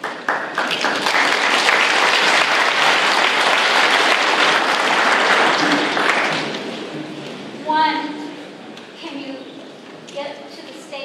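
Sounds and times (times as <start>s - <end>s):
large audience applauding: 0.0s - 6.9s.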